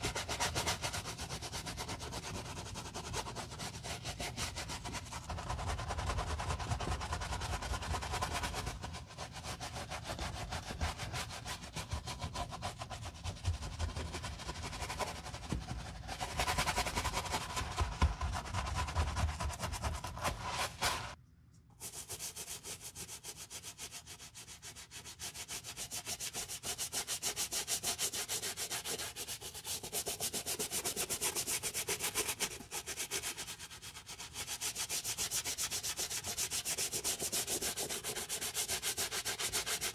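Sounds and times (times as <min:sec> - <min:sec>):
brush scrubbing a sneaker: 0:00.0 - 0:21.2, 0:21.8 - 0:39.9.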